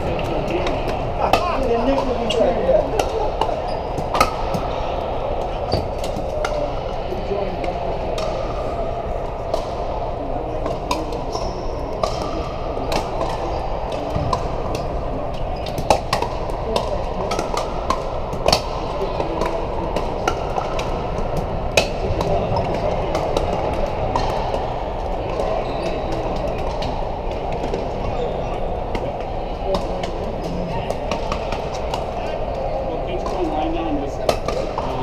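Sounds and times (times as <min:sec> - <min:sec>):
murmur of voices: 0:00.0 - 0:35.0
paddles hitting plastic ball: 0:11.9 - 0:14.9, 0:15.6 - 0:28.1.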